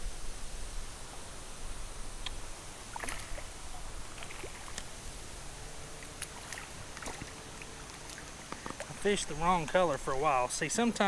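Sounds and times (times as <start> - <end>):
hiss of moving water: 0.0 - 11.0
water splashing and rippling: 2.3 - 11.0.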